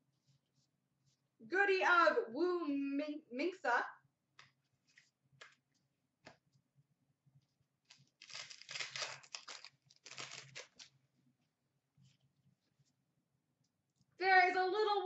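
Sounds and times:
wrapper tearing and crinkling: 7.9s - 11.0s.

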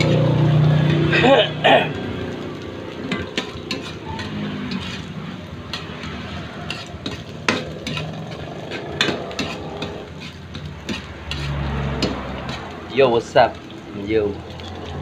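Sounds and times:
metal spatula scraping a wok: 0.0s - 1.3s, 3.0s - 13.0s, 14.4s - 15.0s
meat sizzling in hot oil: 0.0s - 15.0s
spatula clinking against wok: 3.0s - 12.8s.

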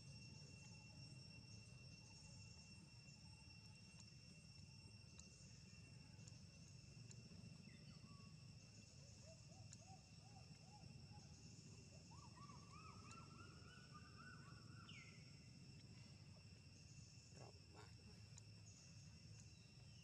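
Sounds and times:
insects droning: 0.0s - 20.0s
whistled calls: 7.6s - 20.0s.

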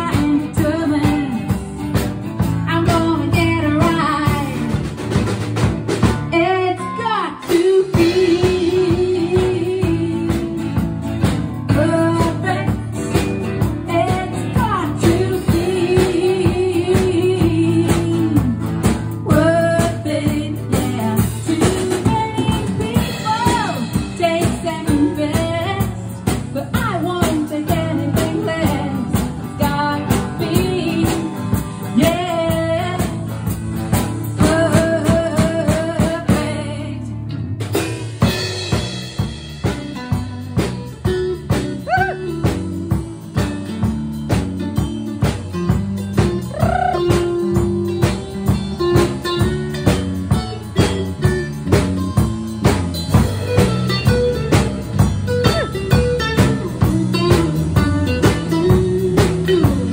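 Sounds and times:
drum kit: 0.0s - 59.9s
electric guitar: 0.0s - 59.9s
live band playing pop-rock: 0.0s - 59.9s.

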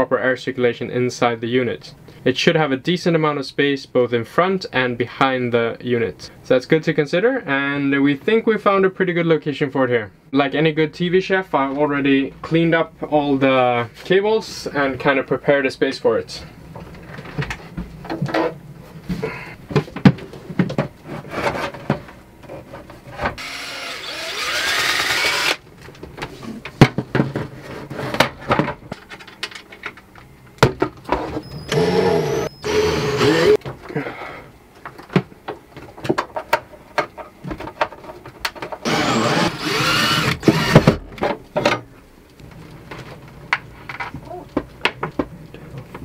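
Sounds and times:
power drill running: 23.4s - 25.6s, 31.4s - 33.6s, 38.8s - 41.0s.

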